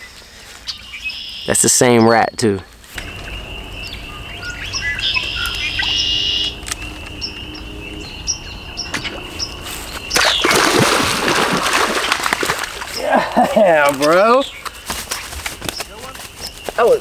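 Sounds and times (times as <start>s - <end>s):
birds chirping: 0.0s - 17.0s
loud burst of noise: 3.0s - 8.0s
high-pitched drone: 3.0s - 10.6s.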